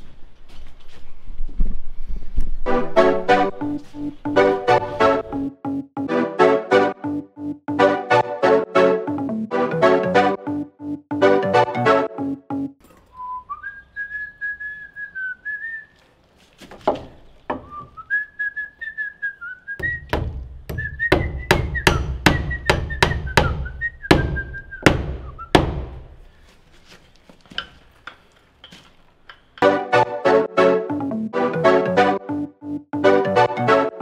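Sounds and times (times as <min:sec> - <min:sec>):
man whistling a tune: 0:13.1 - 0:16.0, 0:17.6 - 0:25.6
hammer striking wood: 0:19.8 - 0:26.1.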